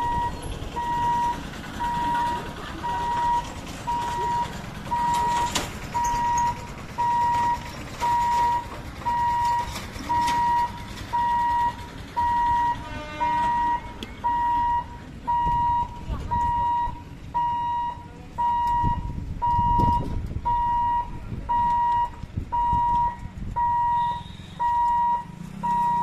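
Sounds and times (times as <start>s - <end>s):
motorbike and road traffic: 0.0s - 26.0s
warning hooter beeping: 0.0s - 26.0s
short vehicle horn: 12.7s - 14.0s, 23.9s - 24.8s.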